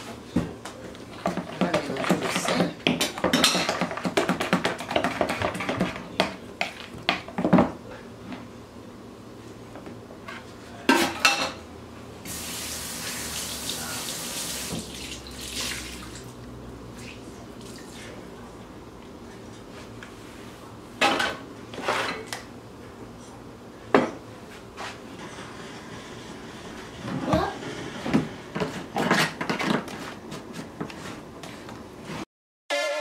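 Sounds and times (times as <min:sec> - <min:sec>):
mixing in a kitchen bowl: 0:00.0 - 0:07.5.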